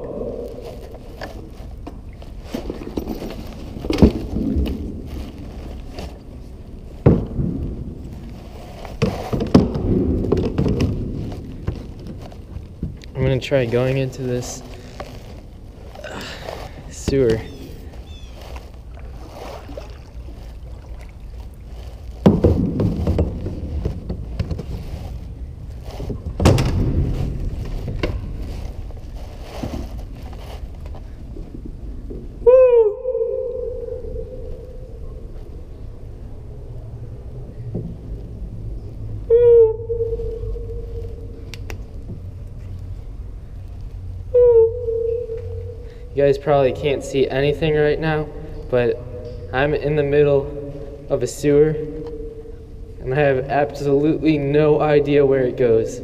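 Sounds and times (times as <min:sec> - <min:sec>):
gear knocking and rustling in kayak: 0:00.0 - 0:32.4
low steady rumble: 0:00.0 - 0:56.0
paddle knocking on plastic hull: 0:22.2 - 0:24.7.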